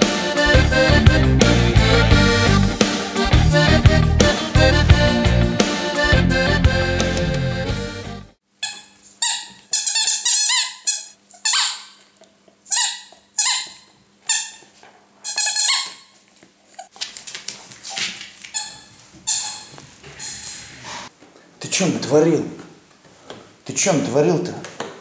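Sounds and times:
accordion music: 0.0s - 8.4s
rubber toy squeaking: 8.6s - 12.1s, 12.7s - 16.1s, 18.5s - 20.7s
scuffling noise: 16.0s - 21.2s.

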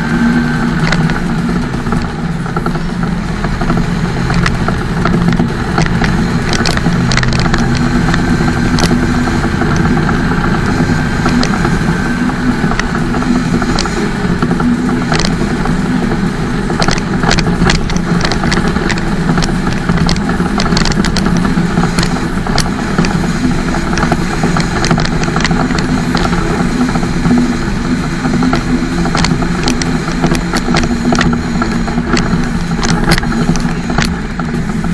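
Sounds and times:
diesel truck engine cruising: 0.0s - 34.9s
sharp clicks: 3.4s - 10.2s, 11.2s - 11.8s, 12.6s - 27.4s, 28.0s - 34.7s.

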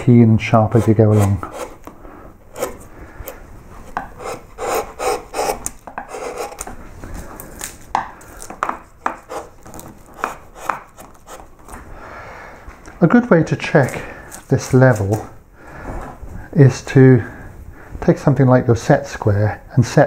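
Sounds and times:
gouge shaving wood: 0.6s - 1.9s, 2.5s - 2.8s, 4.2s - 6.7s, 8.4s - 11.5s.

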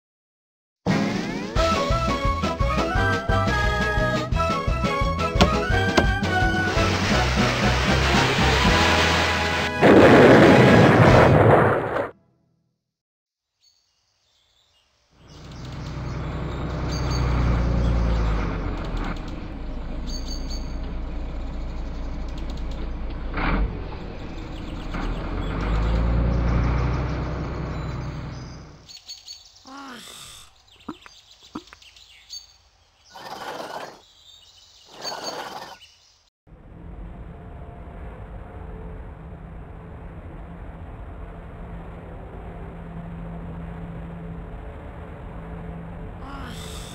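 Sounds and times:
bus engine rumbling: 1.6s - 10.8s, 15.3s - 28.9s, 36.5s - 46.9s
bird chirps: 13.5s - 19.0s, 19.6s - 23.0s, 24.0s - 36.3s.

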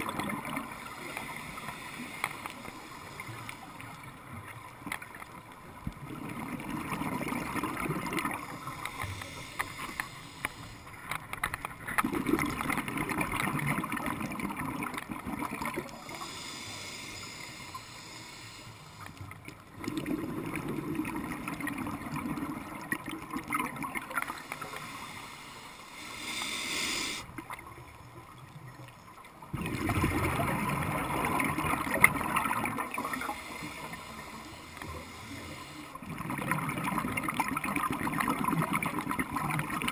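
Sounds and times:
hissing inhalation: 8.4s - 11.0s, 16.0s - 19.2s, 24.3s - 27.3s, 33.1s - 36.0s.

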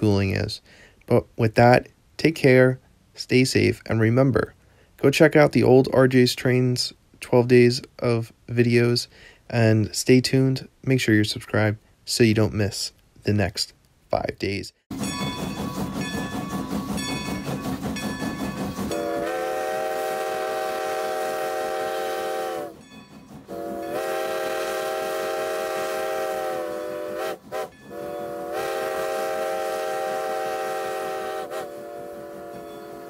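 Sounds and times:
train rhythmic clatter: 14.9s - 33.0s
train chime whistle blasts: 15.0s - 33.0s.

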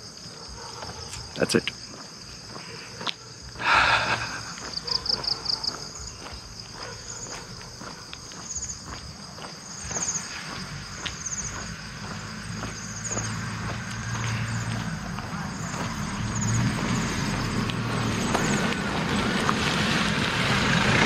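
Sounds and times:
footsteps on concrete: 0.0s - 16.6s
insects trilling and chirping: 0.0s - 21.0s.

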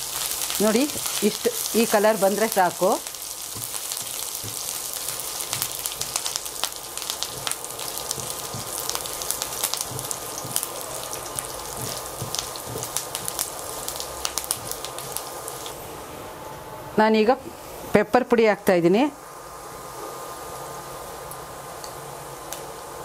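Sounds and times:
garlic sizzling in hot oil: 0.0s - 16.0s
spatula knocking against pan: 11.7s - 13.4s.

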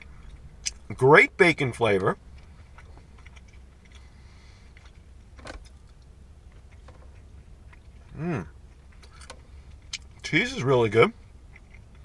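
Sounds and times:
man chewing: 0.0s - 0.9s, 2.2s - 10.2s, 11.2s - 12.0s
low steady hum: 0.0s - 12.0s
man humming: 8.1s - 8.5s.

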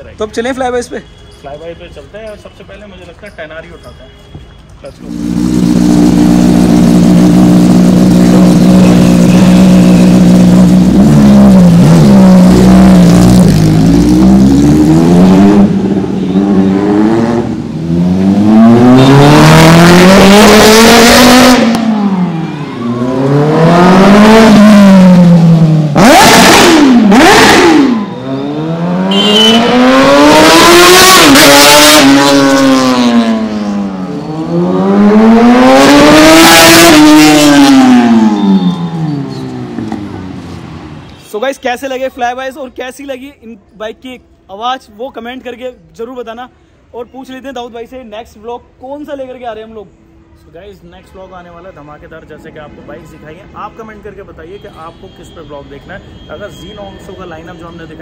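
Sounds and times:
motorcycle revving and passing by: 5.1s - 41.0s.

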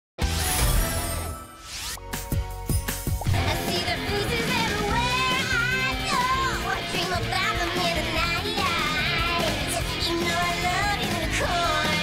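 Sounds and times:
electric guitar bass and drums: 3.2s - 12.0s
woman singing rock song: 3.4s - 12.0s.

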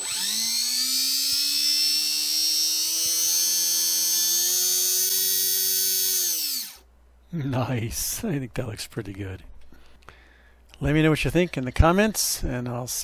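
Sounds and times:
small electric motor whining: 0.0s - 6.8s.

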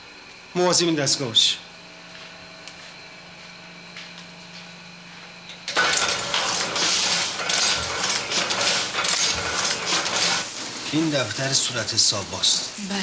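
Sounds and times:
printing press clatter: 5.7s - 10.5s.

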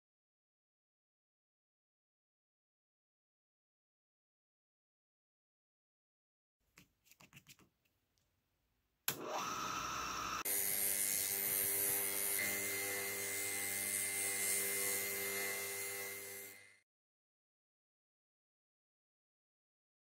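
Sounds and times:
disc grinder motor whine: 9.1s - 16.7s.

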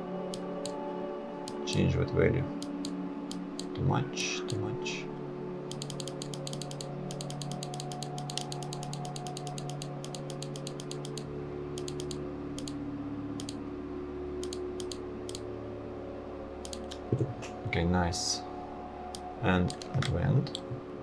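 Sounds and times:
steady low hum: 0.0s - 21.0s
computer mouse clicks: 2.6s - 3.7s, 5.7s - 12.8s, 13.4s - 13.6s, 14.4s - 15.4s, 16.6s - 17.0s, 19.1s - 20.7s.

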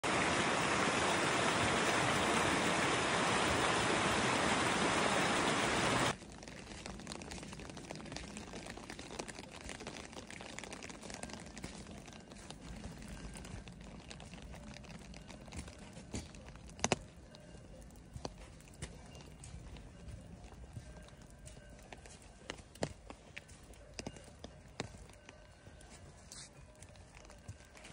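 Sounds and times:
stream rushing over rocks: 0.0s - 6.2s
rain pattering: 0.0s - 27.9s
footsteps on dirt path: 6.1s - 27.9s.

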